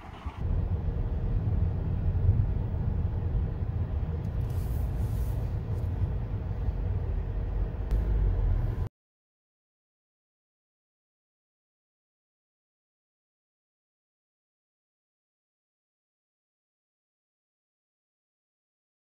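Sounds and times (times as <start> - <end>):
car engine and road rumble: 0.0 - 8.9.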